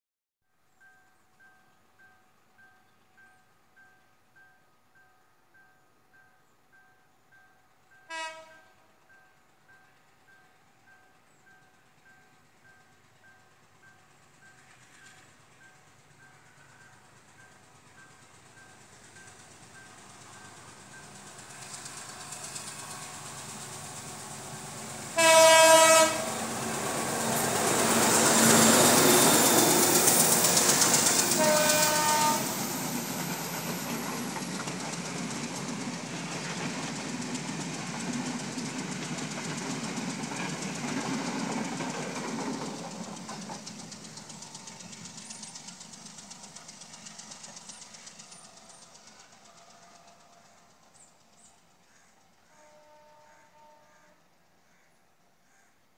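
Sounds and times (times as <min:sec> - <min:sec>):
diesel locomotive passing: 0:05.5 - 0:55.0
train horn blast: 0:08.1 - 0:08.9, 0:25.1 - 0:26.6, 0:31.3 - 0:32.7, 0:52.4 - 0:54.4
train carriages clattering on rails: 0:25.9 - 0:52.4.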